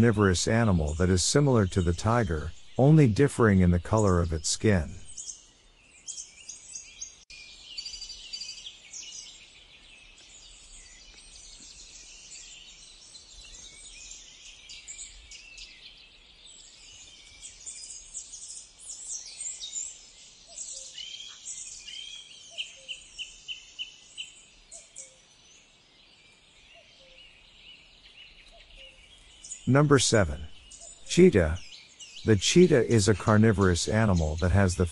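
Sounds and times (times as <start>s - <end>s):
bird giving evenly spaced notes: 0.0s - 5.5s, 28.6s - 34.9s
songbirds chirping and singing: 0.0s - 34.9s.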